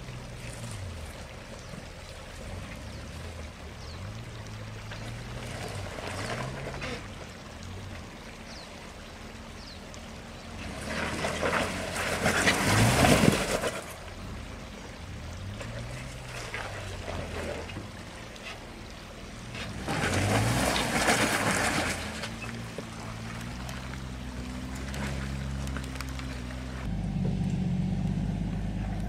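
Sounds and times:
car engine in low gear: 9.5s - 29.0s
deep engine running steadily: 22.1s - 29.0s.

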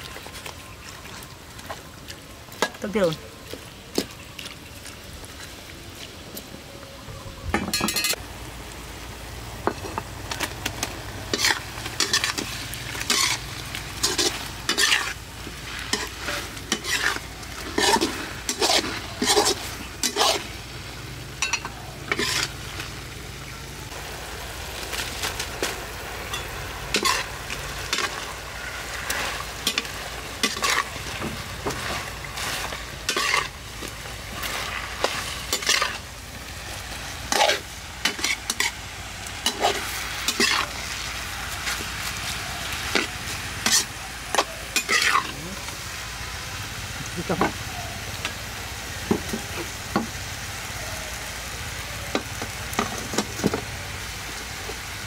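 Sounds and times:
food sizzling in a wok: 7.6s - 55.0s
metal spatula scraping a pan: 11.3s - 15.2s, 15.8s - 20.5s, 21.4s - 22.6s, 26.3s - 33.6s, 34.3s - 36.0s, 37.2s - 38.8s, 39.4s - 40.8s, 42.9s - 45.4s.

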